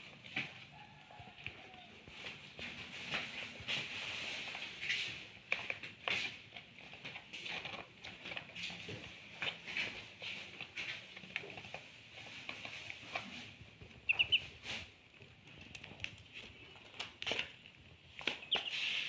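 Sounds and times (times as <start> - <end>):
bills pecking at a dish: 0.0 - 19.0
ducklings peeping: 14.0 - 14.8, 18.2 - 19.0.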